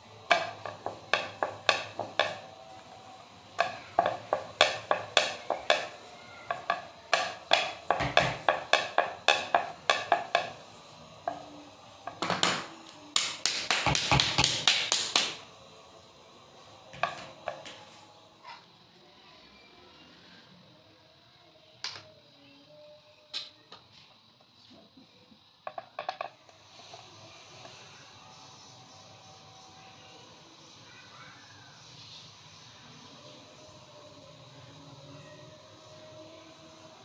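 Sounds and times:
rolling pin clacking on board: 0.2 - 2.6, 3.5 - 15.4, 17.0 - 17.8.

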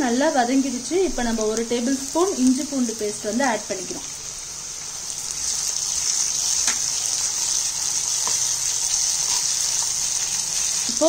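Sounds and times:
onions sizzling in hot oil: 0.0 - 11.0
spatula taps: 6.6 - 7.0, 8.1 - 8.6.

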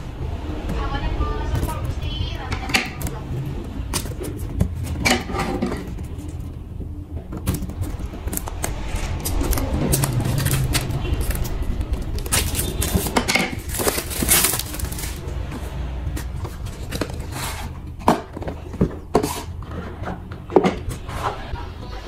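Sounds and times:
plastic wrap crinkling and tearing: 7.8 - 15.4.

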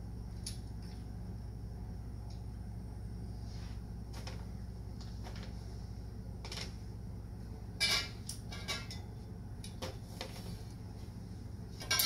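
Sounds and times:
steady low hum: 0.0 - 12.0
metal parts clinking and knocking: 11.8 - 12.0.

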